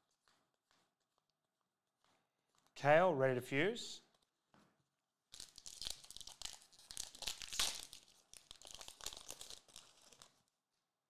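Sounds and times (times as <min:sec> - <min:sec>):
foil wrapper tearing and crinkling: 0:05.3 - 0:10.5.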